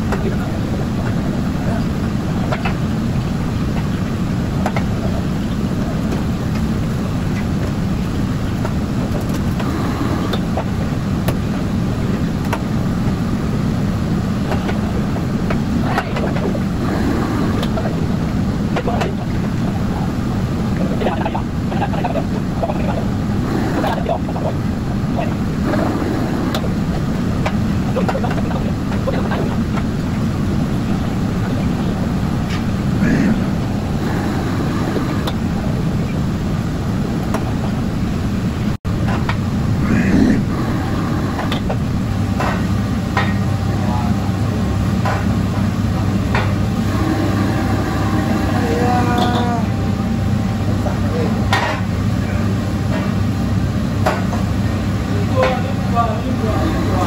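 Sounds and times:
gas burner and exhaust hood roar: 0.0s - 57.0s.

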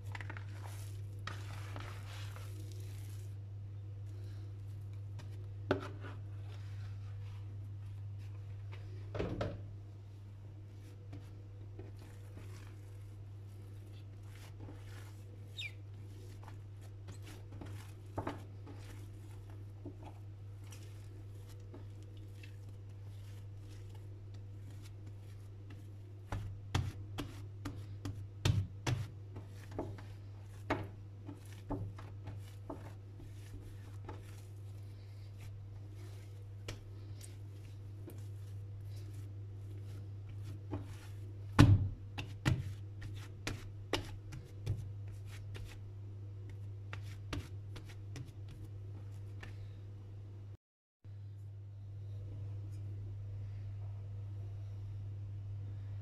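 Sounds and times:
steady low hum: 0.9s - 56.0s
dough thumping on counter: 40.7s - 44.9s.

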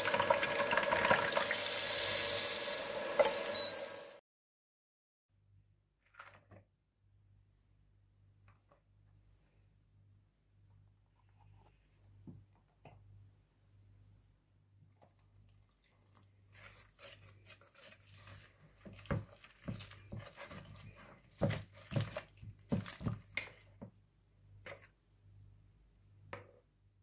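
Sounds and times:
whisk scraping in plastic bowl: 16.5s - 23.8s.

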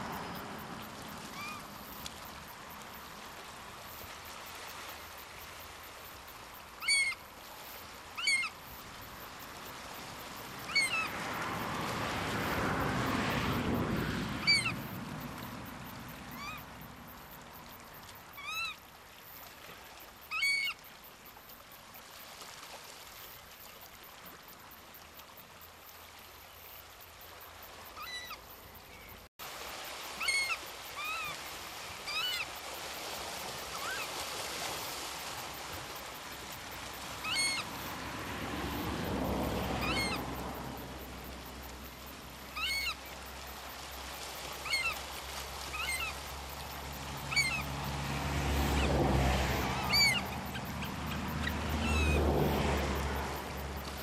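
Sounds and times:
running water rushing: 0.0s - 54.0s
oystercatchers peeping: 39.8s - 40.2s, 42.6s - 43.0s, 47.2s - 47.7s, 49.8s - 52.2s.

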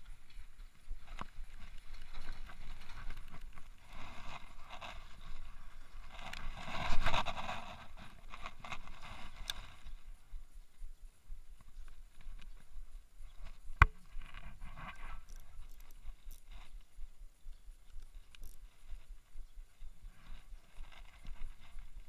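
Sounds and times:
reel clicks: 13.7s - 16.7s, 17.6s - 19.2s.

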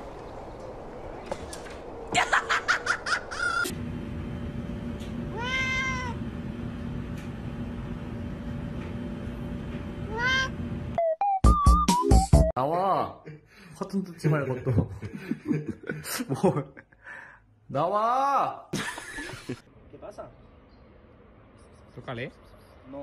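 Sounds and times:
cat meowing: 5.3s - 6.2s, 10.1s - 10.5s.

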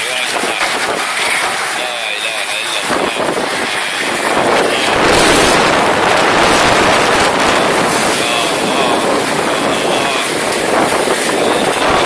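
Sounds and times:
heavy rain: 0.0s - 12.0s
storm wind: 0.0s - 12.0s.

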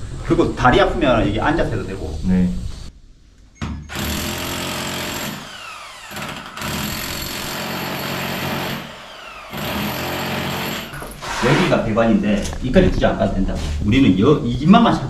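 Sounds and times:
demolition hammer chipping concrete: 3.9s - 11.7s.

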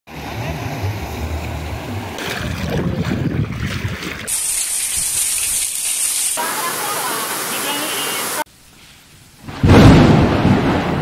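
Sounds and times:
wind rumbling on microphone: 1.0s - 4.3s
rushing floodwater: 6.3s - 8.5s.

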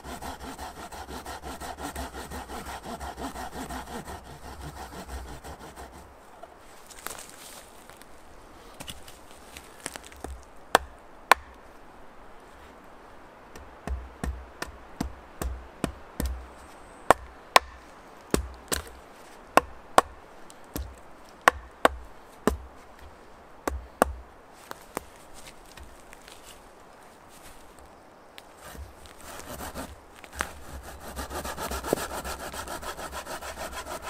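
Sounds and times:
axe chopping into wood: 10.2s - 11.6s, 17.1s - 19.0s, 19.6s - 22.7s, 23.6s - 24.2s.

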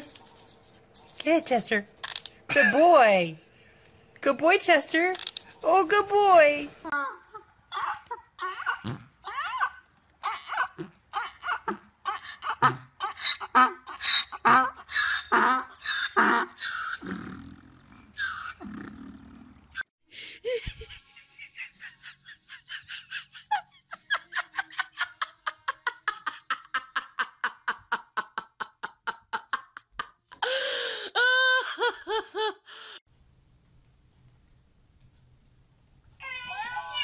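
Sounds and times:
person laughing hard: 20.4s - 32.8s.

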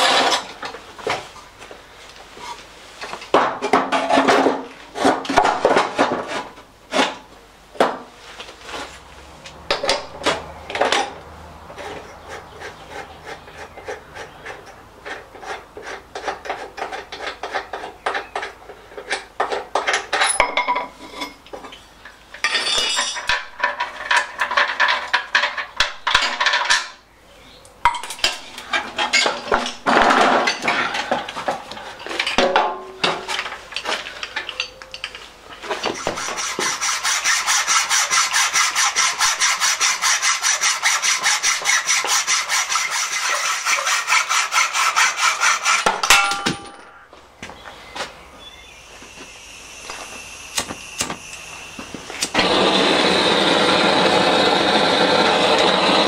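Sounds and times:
hacksaw cutting metal: 9.7s - 11.2s, 11.8s - 20.4s, 35.7s - 47.0s, 52.2s - 56.0s
metal clinks and scrapes: 14.6s - 21.5s, 22.3s - 27.0s, 45.6s - 47.1s.

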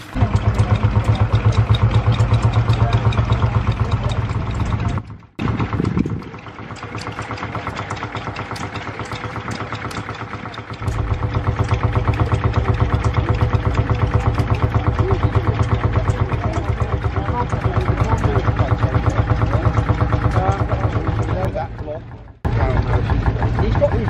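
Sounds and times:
tractor engine chugging: 0.0s - 24.0s.

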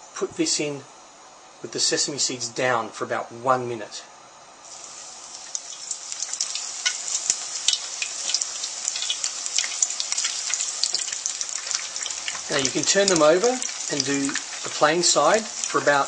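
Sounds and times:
food sizzling in hot oil: 4.6s - 16.0s.

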